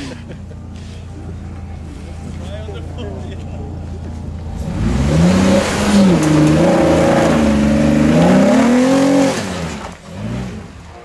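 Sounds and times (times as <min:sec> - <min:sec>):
tyres spinning in mud: 0:04.4 - 0:11.0
engine revving hard: 0:04.6 - 0:10.8.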